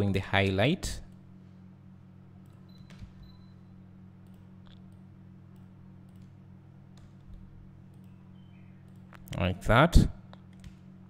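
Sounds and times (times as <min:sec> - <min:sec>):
steady low hum: 0:00.0 - 0:11.0
computer mouse clicks: 0:04.2 - 0:06.4.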